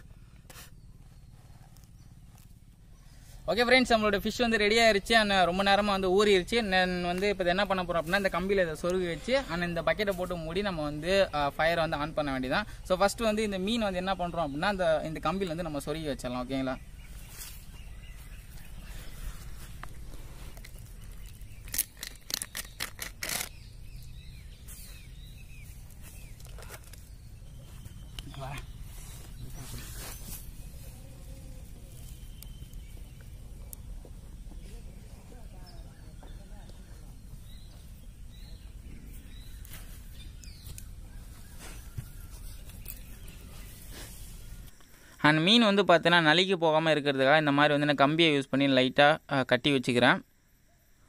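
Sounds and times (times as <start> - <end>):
low steady hum: 0.0 - 46.2
birds chirping faintly: 0.0 - 51.0
steady low rumble: 23.0 - 44.7.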